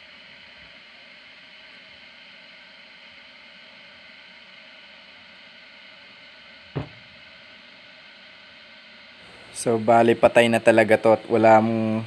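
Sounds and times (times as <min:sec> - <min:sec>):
faint hiss: 0:00.0 - 0:12.0
battery knocking on tabletop: 0:06.8 - 0:07.0.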